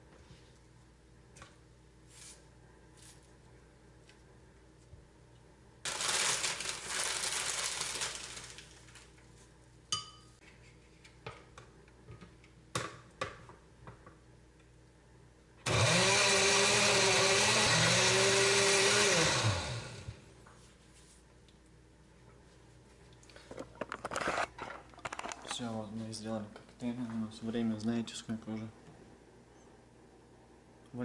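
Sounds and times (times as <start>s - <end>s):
electric blender running: 15.6s - 20.2s.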